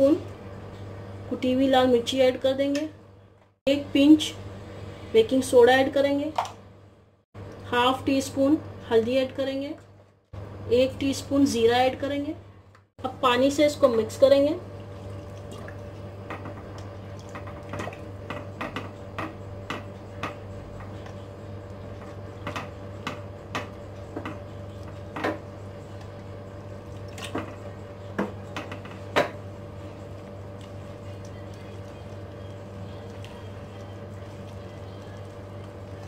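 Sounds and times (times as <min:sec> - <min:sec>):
steady low hum: 0:00.0 - 0:36.0
hand mixing wet batter: 0:14.6 - 0:19.1, 0:19.8 - 0:36.0.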